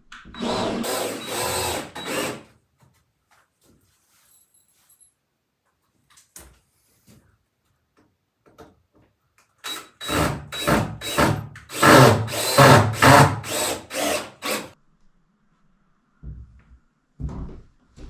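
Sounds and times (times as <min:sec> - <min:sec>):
cordless drill driving screws: 0:00.3 - 0:02.5, 0:09.6 - 0:14.7.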